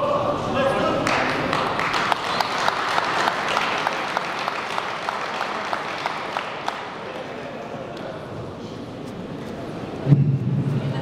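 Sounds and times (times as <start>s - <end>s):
crowd applauding: 1.0s - 7.8s.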